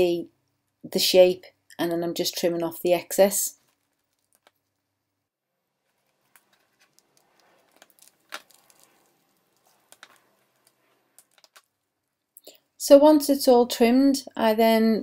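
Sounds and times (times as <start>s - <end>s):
resin pieces being handled: 3.6s - 12.4s.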